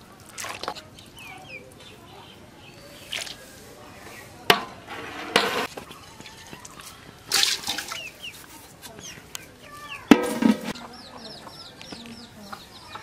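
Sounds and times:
small birds chirping: 0.0 - 4.4, 5.7 - 13.0
chickens clucking: 0.4 - 13.0
short scraping noises: 4.8 - 5.7.

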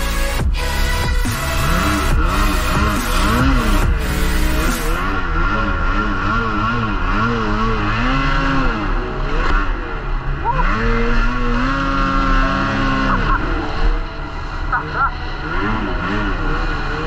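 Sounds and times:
snowmobile engine revving: 0.0 - 17.0.

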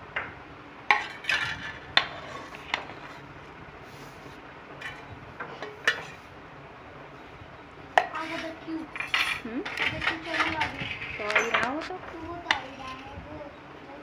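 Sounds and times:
steel spoon scraping a pot: 0.9 - 3.2, 8.0 - 11.8.

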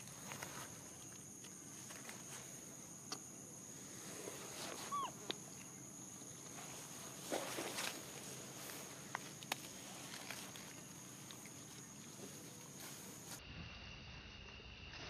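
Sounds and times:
steady high-pitched hum: 0.0 - 15.0
squeaking animal call: 4.9 - 5.2
faint clicks and rustles: 6.4 - 13.4.

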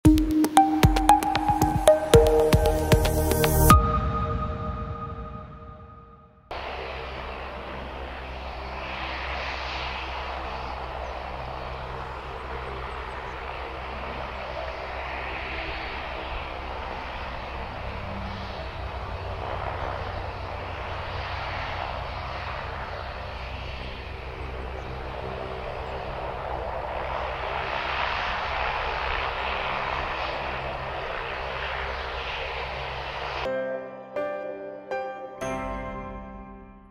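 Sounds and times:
helicopter turbine and rotor: 6.5 - 33.5.

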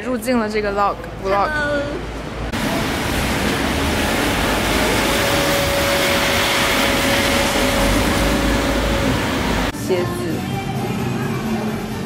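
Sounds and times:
traffic on a wet road: 1.0 - 9.8.

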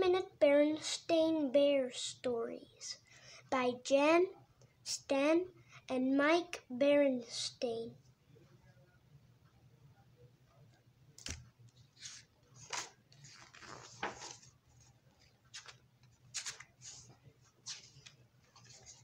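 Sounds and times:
pages flipping and rustling: 11.2 - 19.0.

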